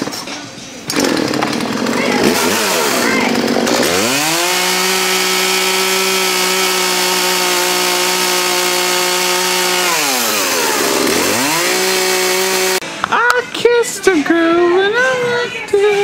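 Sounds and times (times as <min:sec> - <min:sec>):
chainsaw cutting wood: 0:00.9 - 0:12.8
chainsaw revving: 0:00.9 - 0:12.8.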